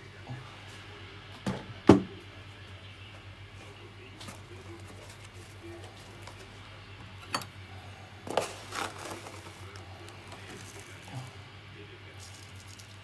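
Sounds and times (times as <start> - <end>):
carton rustle: 3.6 - 6.6, 8.2 - 11.2.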